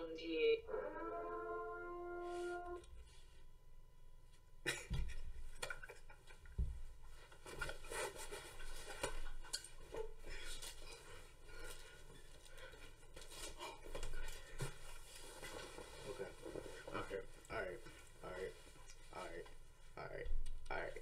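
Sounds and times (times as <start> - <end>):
fabric rustling: 6.8 - 20.0.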